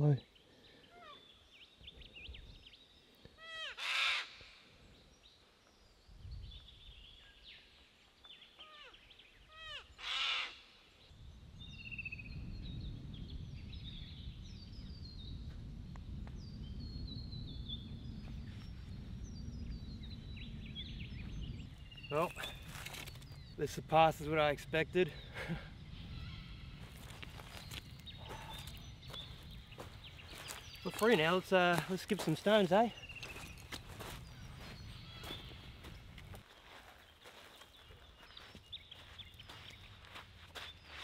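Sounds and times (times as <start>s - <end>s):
small birds chirping: 4.4s - 41.0s
low rumble: 11.2s - 23.6s.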